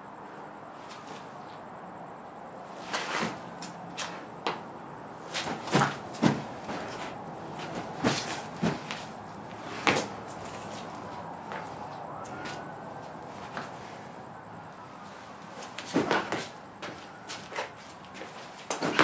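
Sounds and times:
footstep thumps and scuffs: 5.3 - 12.6, 13.4 - 13.8, 15.6 - 19.0.

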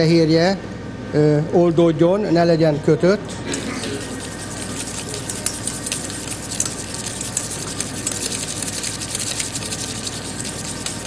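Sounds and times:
whisk clicking against metal pot: 4.0 - 11.0.

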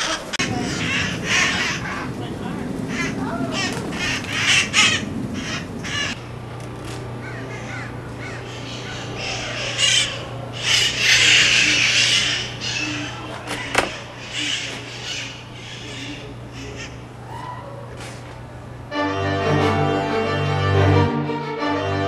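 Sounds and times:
parakeets screeching: 0.0 - 6.2, 7.2 - 17.9.

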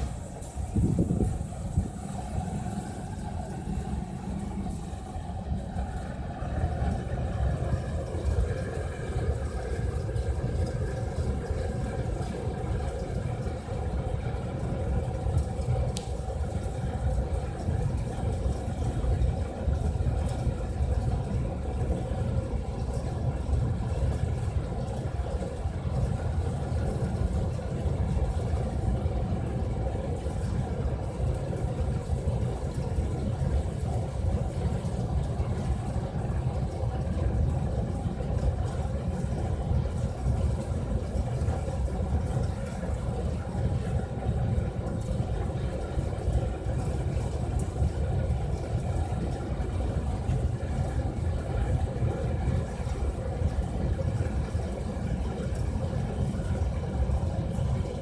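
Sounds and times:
faint high whine: 0.0 - 19.9
burner flame rumbling: 0.0 - 58.0
fan droning: 0.0 - 58.0.

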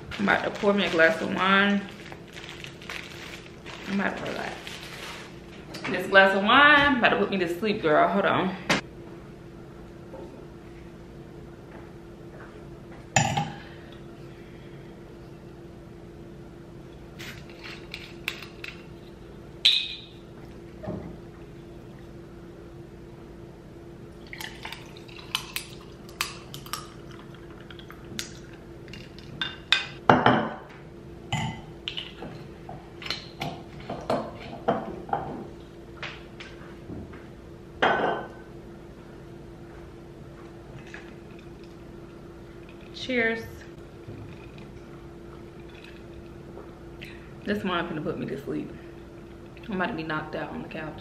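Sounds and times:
faint steady hum: 0.0 - 51.0
wine pouring into a glass: 24.2 - 28.1.

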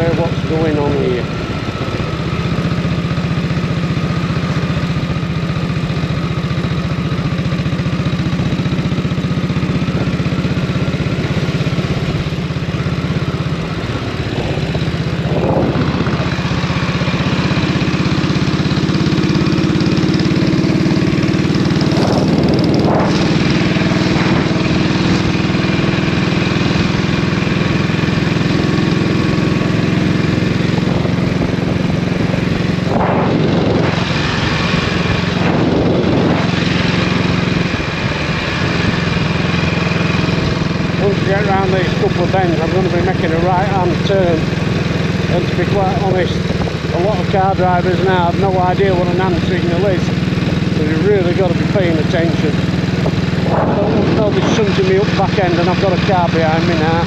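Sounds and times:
motorcycle engine running: 0.0 - 57.0
wind rush on microphone: 14.2 - 16.6, 20.7 - 25.8, 30.3 - 39.2, 52.6 - 57.0.

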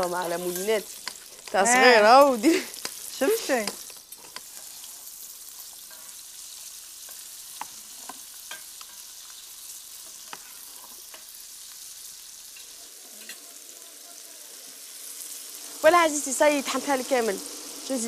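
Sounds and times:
metal utensils clinking: 0.0 - 4.8, 12.5 - 13.5
fish frying sizzle: 0.0 - 18.0.

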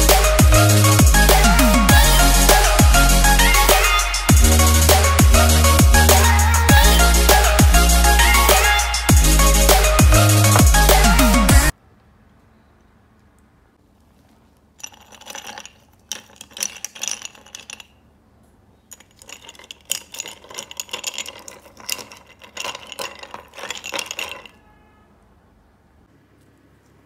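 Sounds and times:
ice cubes clinking in glass: 14.8 - 18.1, 18.9 - 24.7.

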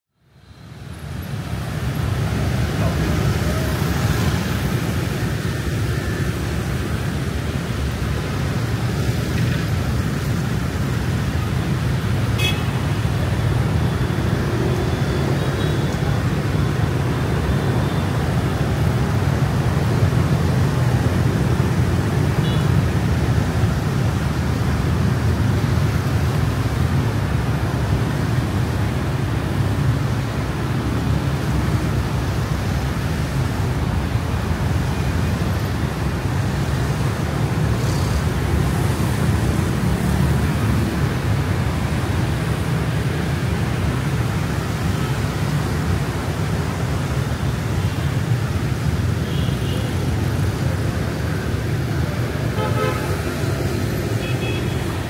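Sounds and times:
city street traffic rumble: 0.1 - 55.0
car horn beep: 12.4 - 12.8, 52.6 - 53.2.

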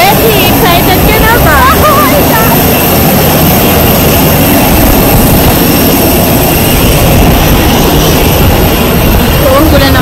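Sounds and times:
aircraft engines roaring: 0.0 - 10.0.

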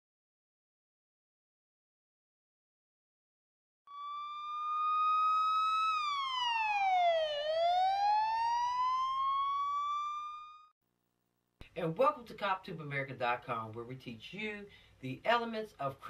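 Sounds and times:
siren wail: 3.9 - 10.7.

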